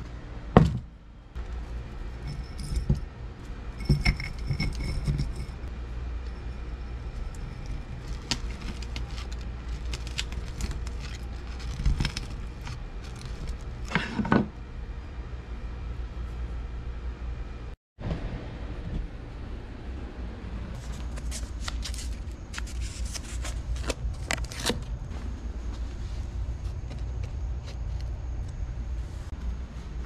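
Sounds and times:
low hum: 0:00.0 - 0:30.0
copper wire jangling and clinking: 0:02.0 - 0:03.1, 0:03.7 - 0:05.7.

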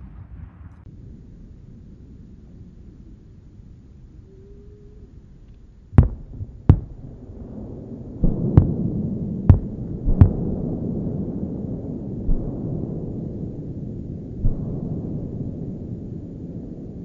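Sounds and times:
low rumble: 0:00.0 - 0:17.0
fireworks launching thumps: 0:06.0 - 0:07.0.

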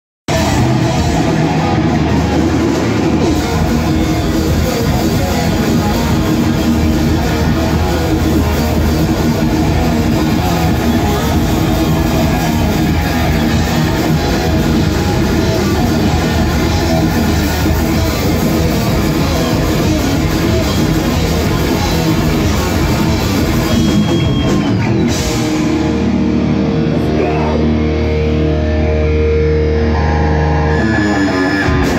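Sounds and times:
distorted electric guitars: 0:00.3 - 0:31.9
drum kit: 0:00.3 - 0:31.9.

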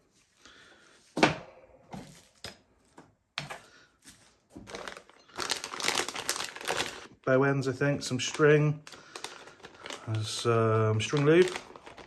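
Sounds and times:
plastic bag crinkling: 0:04.0 - 0:12.0.

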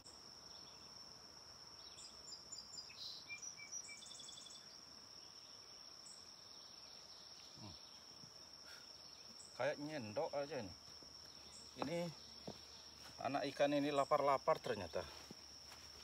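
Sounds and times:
high-pitched insect trill: 0:00.0 - 0:16.0
bird chirps: 0:01.8 - 0:09.8, 0:10.7 - 0:14.1.

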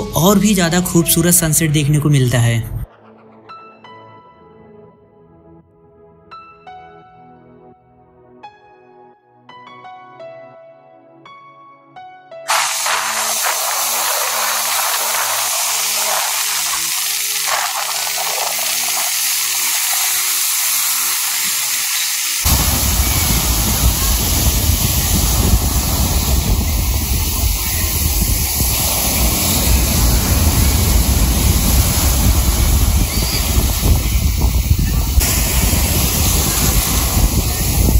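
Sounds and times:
waves breaking on beach: 0:12.5 - 0:37.9.

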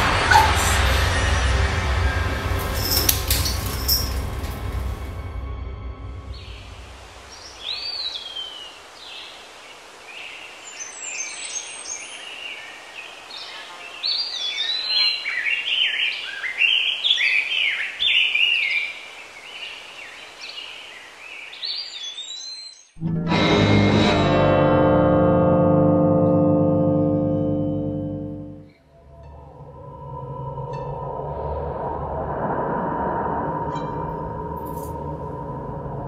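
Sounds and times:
steady background hiss: 0:06.7 - 0:22.8
birds chirping and singing: 0:10.5 - 0:23.0.

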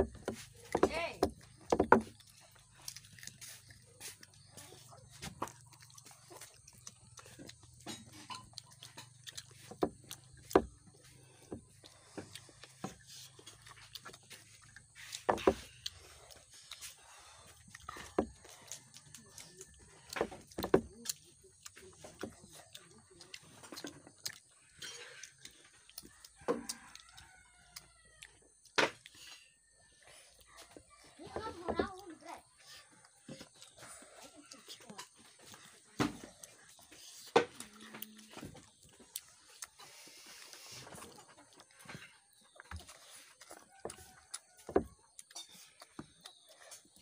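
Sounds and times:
child chewing and smacking: 0:00.0 - 0:47.0
rooster crowing: 0:26.0 - 0:28.5, 0:43.1 - 0:44.9.

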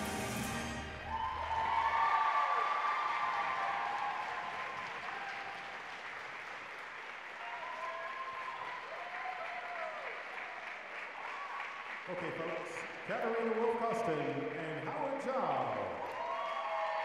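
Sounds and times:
audience applauding: 0:00.0 - 0:17.0
voices cheering: 0:00.9 - 0:05.8, 0:07.3 - 0:10.6, 0:15.8 - 0:17.0.

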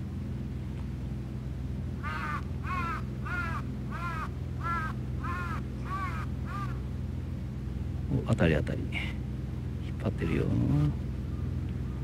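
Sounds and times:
steady low hum: 0:00.0 - 0:12.0
crow cawing: 0:02.0 - 0:06.8.

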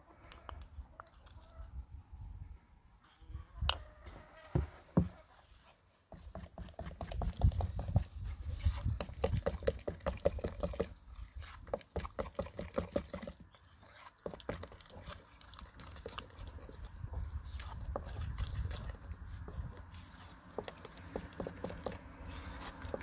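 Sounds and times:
spoon stirring sticky paste: 0:06.1 - 0:23.0.

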